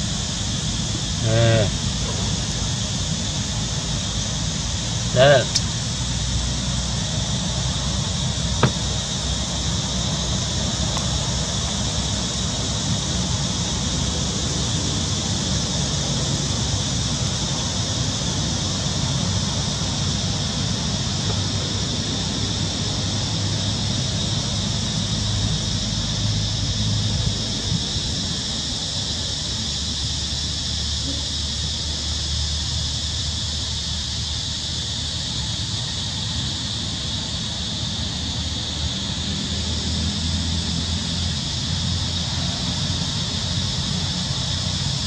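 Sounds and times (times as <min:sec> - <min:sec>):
background hiss: 0:00.0 - 0:45.0.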